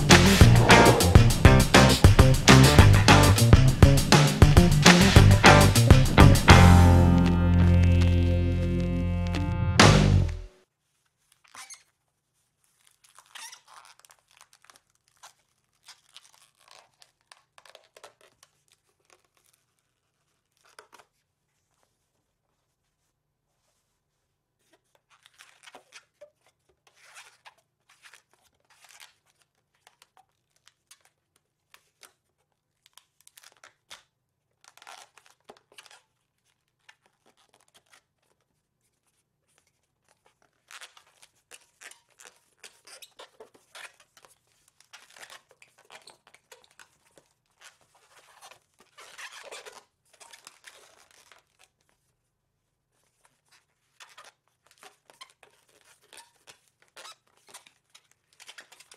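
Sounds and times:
rubber balloon squeaking: 0.0s - 8.1s, 48.0s - 51.3s.

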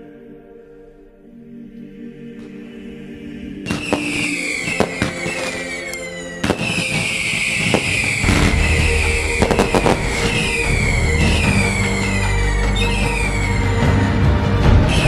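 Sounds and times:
fireworks bangs and crackling: 3.6s - 14.2s
firework whistles falling in pitch: 3.7s - 14.3s.

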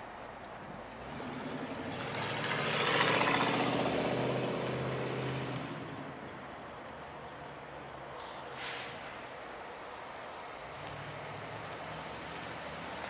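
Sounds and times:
vehicle driving past: 1.0s - 6.4s.

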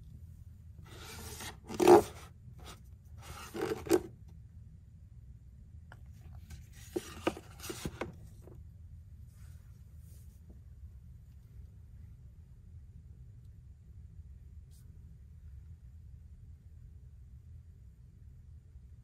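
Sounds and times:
book scraping against books: 0.9s - 4.1s, 6.5s - 8.2s.

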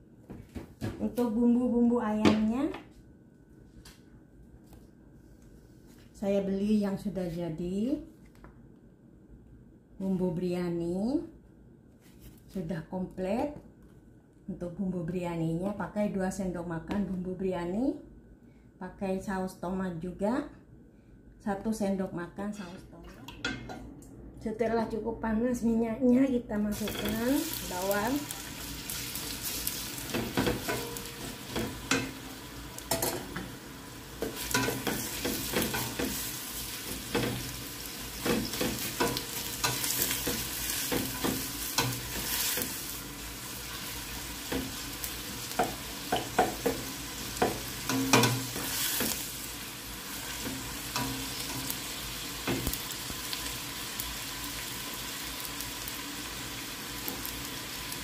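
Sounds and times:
onions sizzling in oil: 26.7s - 58.0s
spatula scraping and knocking pot: 45.6s - 49.2s.

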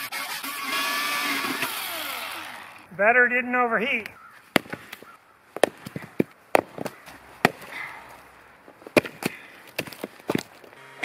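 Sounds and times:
wooden logs knocking: 4.5s - 8.1s, 8.8s - 10.7s.

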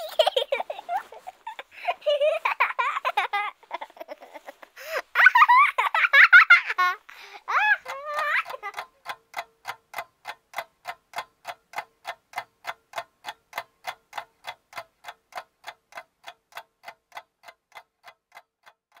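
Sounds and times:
clock ticking: 5.3s - 19.0s.

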